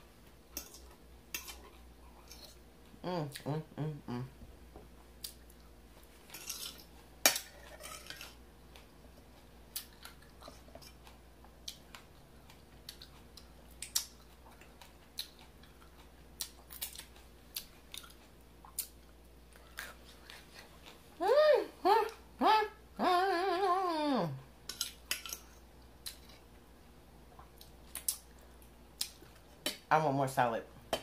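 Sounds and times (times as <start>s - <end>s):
soft chewing: 0.2s - 3.5s, 4.7s - 21.2s, 24.6s - 29.8s.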